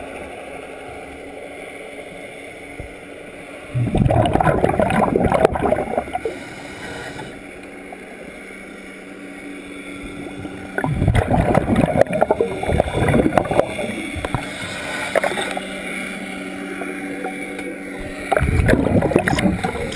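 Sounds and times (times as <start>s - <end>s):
steady low hum: 0.0s - 19.9s
exhaled bubbles rushing underwater: 3.7s - 7.2s, 10.0s - 19.9s
diver inhaling through regulator: 5.8s - 7.6s, 13.8s - 15.8s.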